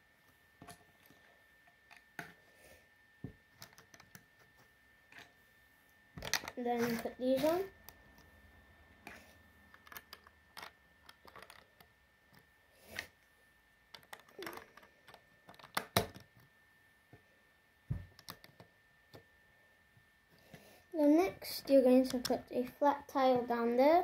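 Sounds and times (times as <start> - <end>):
plastic bricks clicking: 6.2 - 6.6, 9.7 - 11.9, 13.9 - 16.5, 18.1 - 18.7.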